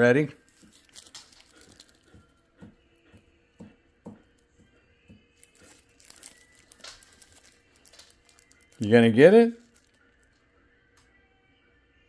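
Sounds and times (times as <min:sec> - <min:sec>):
plastic sheet crinkling: 0:00.4 - 0:02.2, 0:05.4 - 0:10.2.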